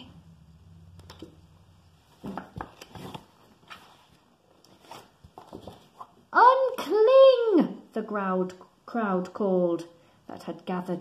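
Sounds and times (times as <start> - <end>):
book pages turning: 2.1 - 6.2
paper rustling: 2.2 - 6.2.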